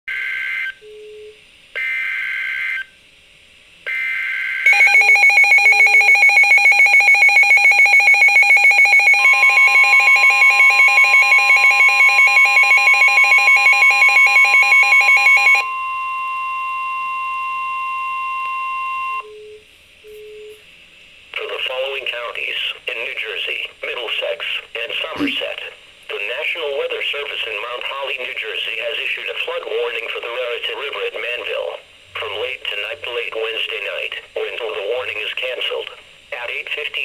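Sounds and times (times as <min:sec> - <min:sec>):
steady warning tone: 0:03.9 - 0:19.6.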